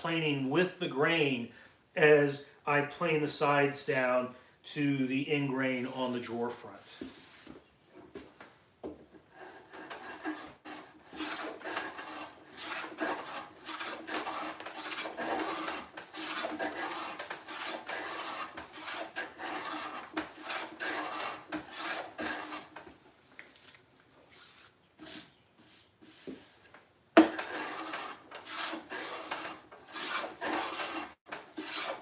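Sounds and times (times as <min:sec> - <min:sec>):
hand plane shaving wood: 0:09.1 - 0:22.9, 0:24.3 - 0:32.0.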